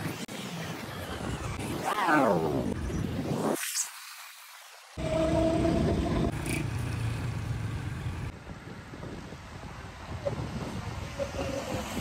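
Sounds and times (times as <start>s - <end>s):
motorbike running: 5.0s - 8.3s
wind buffeting microphone: 8.2s - 12.0s.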